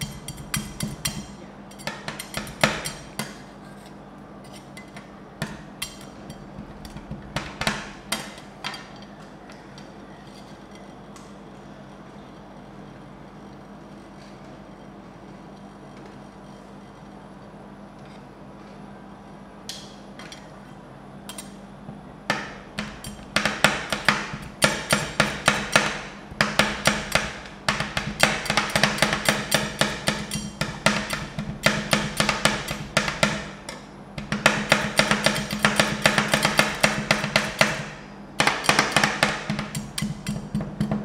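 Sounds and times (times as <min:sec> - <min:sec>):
metal spatulas tapping on pan: 0:00.0 - 0:03.4, 0:22.3 - 0:37.8, 0:38.4 - 0:41.0
steady low hum: 0:00.0 - 0:41.0.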